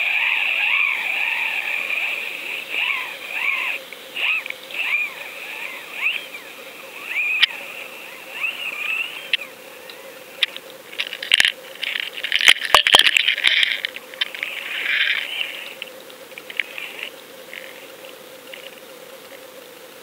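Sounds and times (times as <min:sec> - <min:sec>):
underwater rising and falling chirp: 0:00.0 - 0:09.6
faint steady hum: 0:00.0 - 0:20.0.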